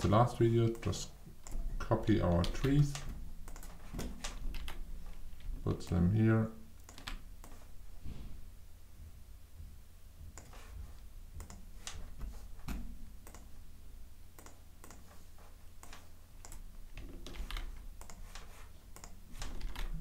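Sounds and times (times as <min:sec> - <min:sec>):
low steady hum: 0:00.0 - 0:20.0
keyboard and mouse clicks: 0:00.7 - 0:06.1, 0:06.8 - 0:07.7, 0:10.3 - 0:10.7, 0:11.4 - 0:13.5, 0:14.4 - 0:15.2, 0:15.8 - 0:20.0.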